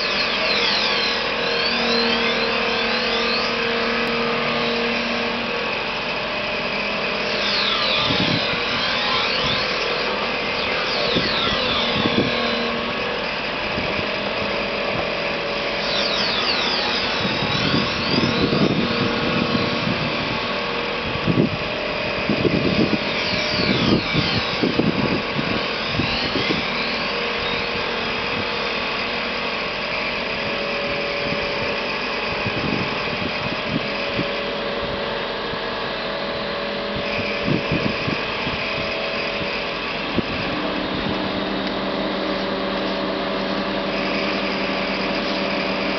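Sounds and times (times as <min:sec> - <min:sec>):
knife sharpening machine grinding: 0:00.0 - 0:33.2
high grinding squeals: 0:00.0 - 0:45.9.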